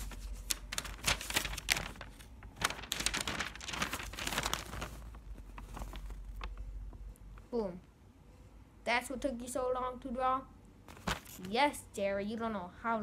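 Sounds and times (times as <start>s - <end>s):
paper rustling and crinkling: 0.0s - 7.1s, 10.9s - 11.5s.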